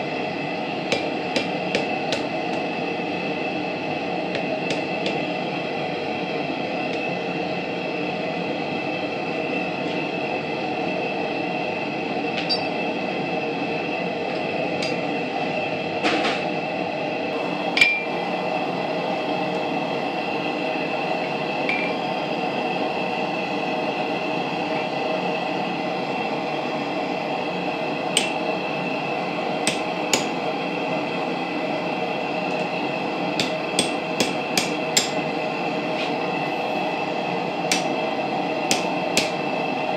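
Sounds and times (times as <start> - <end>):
hammer striking metal on anvil: 0.9 - 2.7, 4.3 - 5.2, 12.4 - 12.8, 17.8 - 18.1, 28.2 - 28.4, 29.6 - 30.4, 33.4 - 35.2, 37.7 - 37.9, 38.7 - 39.4
metallic ring: 12.4 - 12.8.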